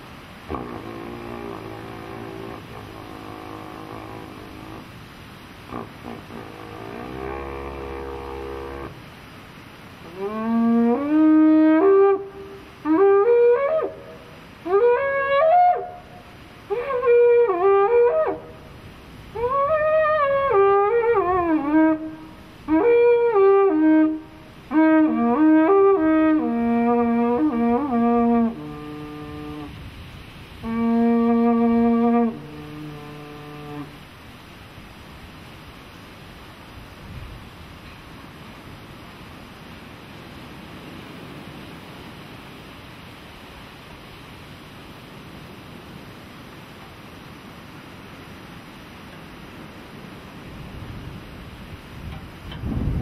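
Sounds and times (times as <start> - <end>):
horn blasts with sliding notes: 0.3 - 9.1.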